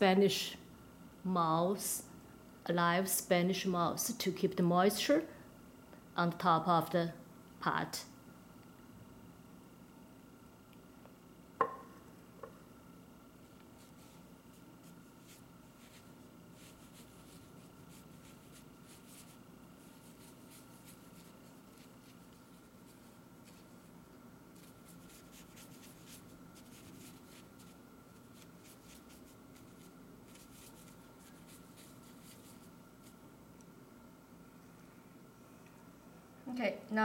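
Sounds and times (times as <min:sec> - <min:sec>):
faint steady hum: 0:00.0 - 0:37.0
brush strokes on paper: 0:13.4 - 0:33.2.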